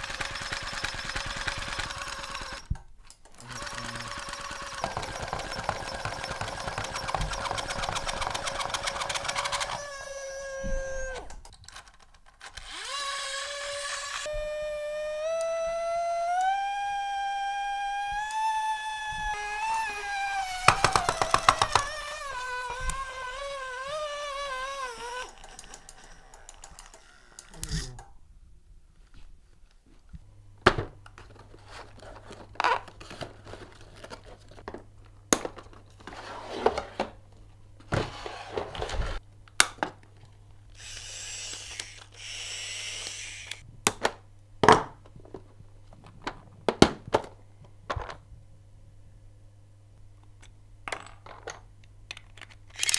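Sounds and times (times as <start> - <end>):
plastic toy parts knocking: 4.7 - 9.7, 20.6 - 22.0.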